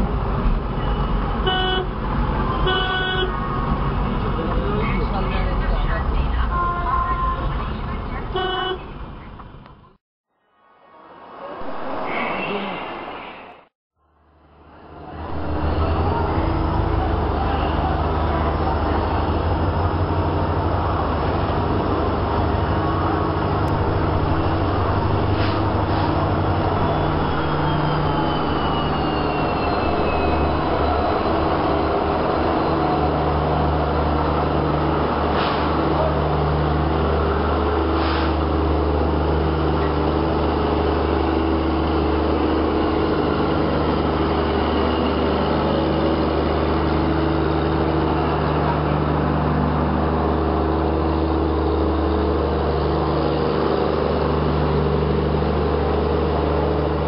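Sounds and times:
diesel locomotive engine drone: 0.0 - 57.0
thin falling whine: 23.7 - 32.8.

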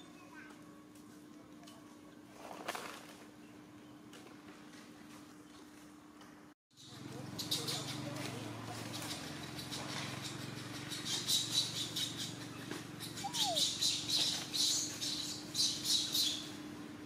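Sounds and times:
high raspy animal calls: 9.6 - 14.1.

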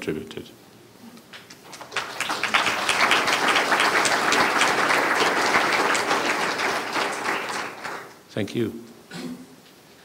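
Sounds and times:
audience applauding: 1.4 - 8.2.

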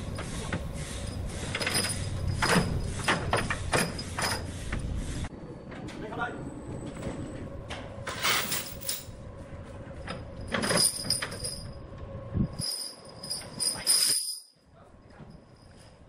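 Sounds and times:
steady low hum: 0.0 - 14.0
steel chains clinking and rattling: 0.8 - 4.6, 8.1 - 9.2, 10.1 - 11.9, 12.5 - 16.0.

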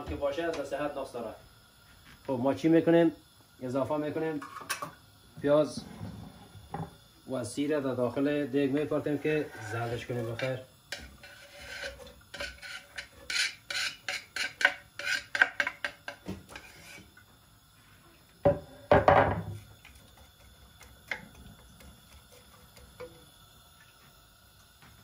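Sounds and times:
spatula scraping cutting board: 5.8 - 6.5, 8.8 - 15.7, 16.5 - 17.1.

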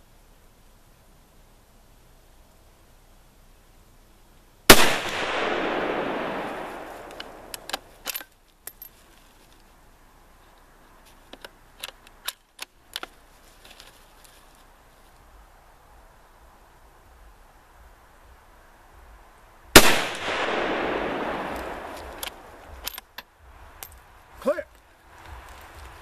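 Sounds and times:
rifle shot with echo: 4.7 - 8.0, 19.8 - 22.9
rifle bolt metallic clicks: 5.0 - 8.9, 11.3 - 13.2, 19.8 - 24.0.

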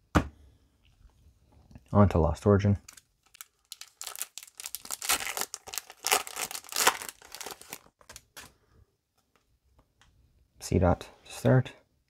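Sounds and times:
foil wrapper tearing and crinkling: 2.9 - 8.4.

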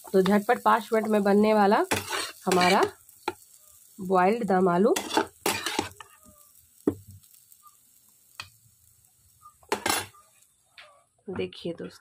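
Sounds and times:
spatula scraping a steel pan: 1.9 - 2.9, 5.0 - 6.4.

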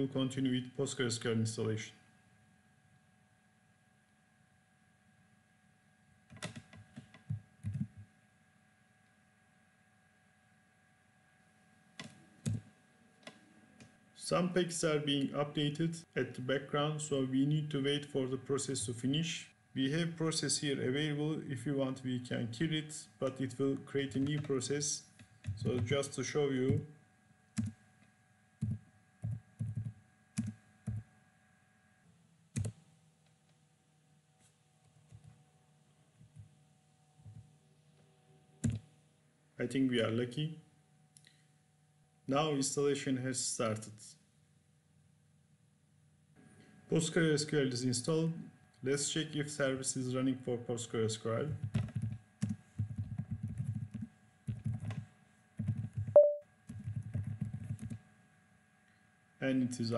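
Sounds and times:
keyboard keystrokes: 6.3 - 8.1, 12.0 - 12.6, 27.6 - 27.8, 28.6 - 31.0, 32.6 - 32.8, 38.6 - 38.9, 55.6 - 58.0
brief beep: 56.2 - 56.4.

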